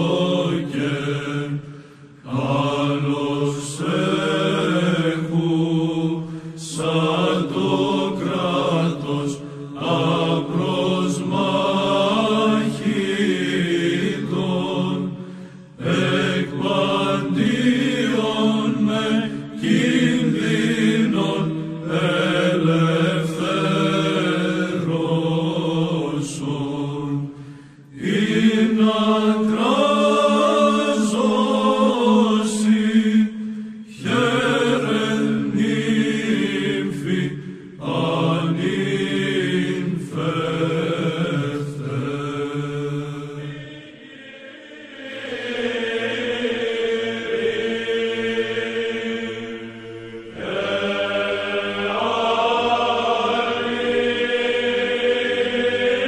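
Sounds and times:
voices chanting: 15.8s - 27.2s, 27.9s - 56.0s.

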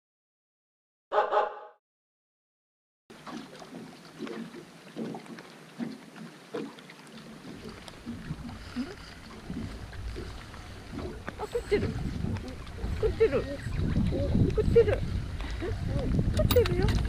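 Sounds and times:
light knocks and taps on a boat: 3.2s - 17.0s
wind rumble on microphone: 7.5s - 17.0s.

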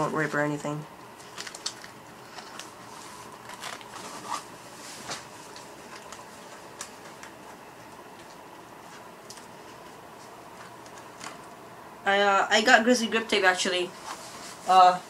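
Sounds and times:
paper rustling and crinkling: 1.2s - 11.5s, 13.9s - 14.8s.

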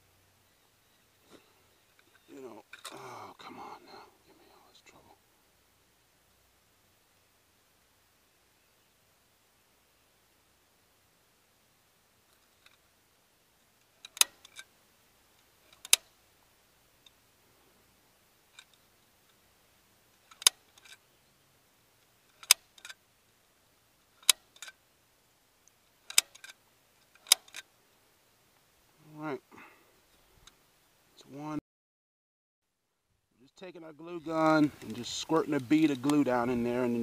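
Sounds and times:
glue gun trigger clicking: 22.4s - 22.9s.

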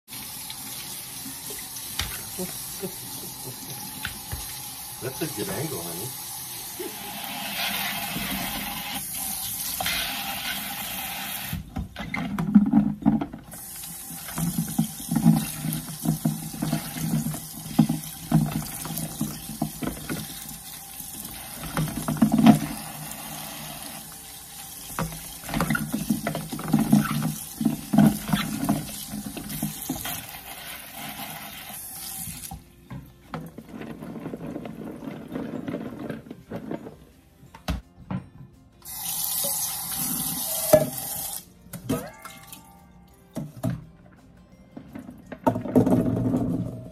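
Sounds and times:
faucet running into metal sink: 0.1s - 11.7s, 13.4s - 32.6s, 38.8s - 41.4s.

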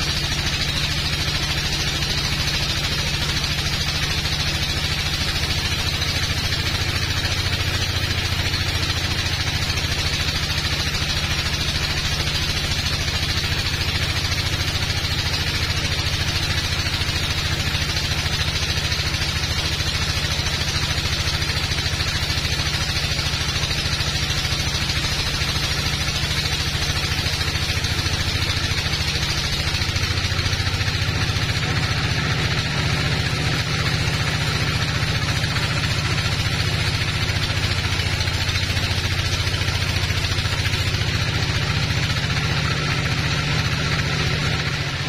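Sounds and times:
bandsaw cutting log: 0.0s - 21.2s.

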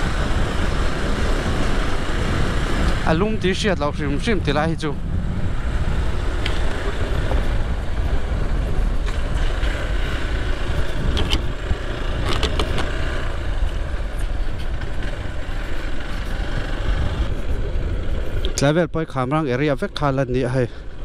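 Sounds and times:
motorcycle engine and road noise: 0.0s - 21.0s
wind rumble on microphone: 0.0s - 21.0s
sharp clicks and rattles: 10.7s - 16.4s.

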